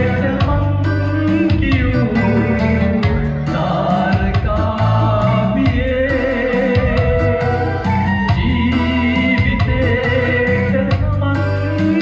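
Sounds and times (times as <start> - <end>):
backing track over loudspeaker: 0.0 - 12.0
men singing karaoke: 0.0 - 12.0.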